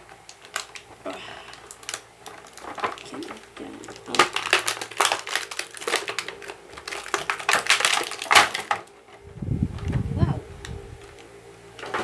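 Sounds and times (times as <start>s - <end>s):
plastic packaging crinkling: 0.0s - 9.2s.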